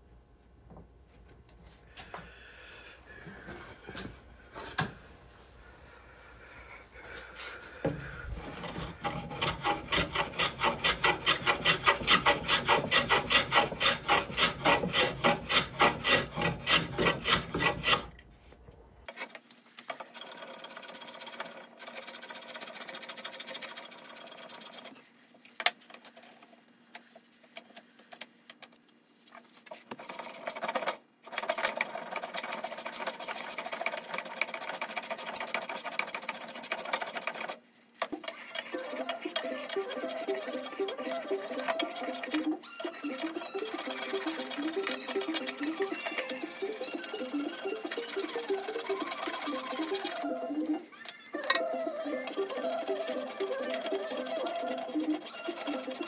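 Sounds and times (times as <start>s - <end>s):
hand plane shaving wood: 7.8s - 18.2s, 19.9s - 25.0s, 29.7s - 50.4s, 51.4s - 56.0s.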